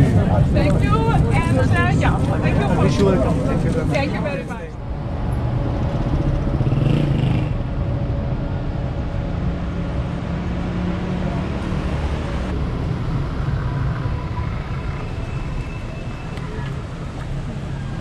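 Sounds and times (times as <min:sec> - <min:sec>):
cars passing on busy road: 0:00.0 - 0:18.0.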